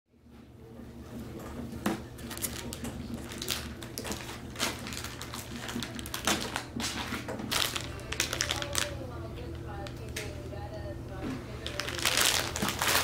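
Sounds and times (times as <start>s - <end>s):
low steady hum: 0.1s - 13.0s
plastic packaging crinkling: 2.1s - 10.2s, 11.6s - 13.0s.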